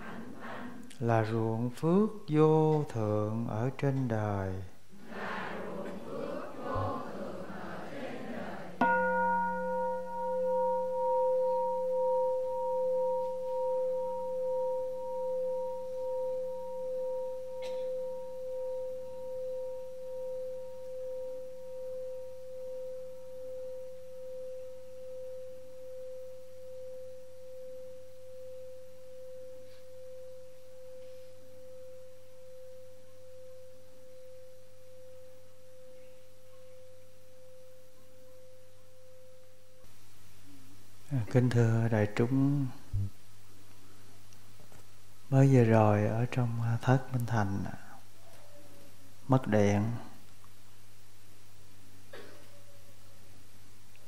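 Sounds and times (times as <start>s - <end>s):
bowl bell ringing: 8.8s - 39.8s.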